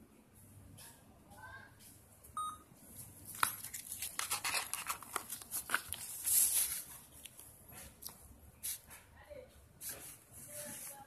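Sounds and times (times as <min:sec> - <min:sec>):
short beep: 0:02.4 - 0:02.6
paper rustling: 0:03.1 - 0:09.0.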